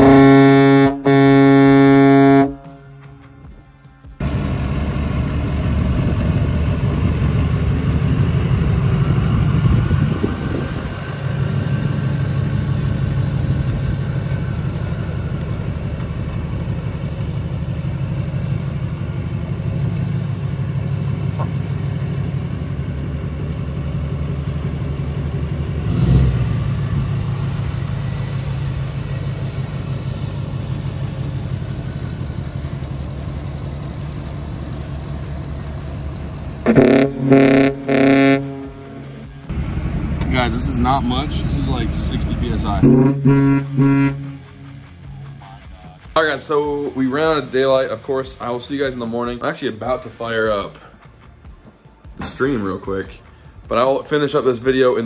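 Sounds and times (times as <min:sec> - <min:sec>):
diesel truck engine clatter: 0:00.0 - 0:55.0.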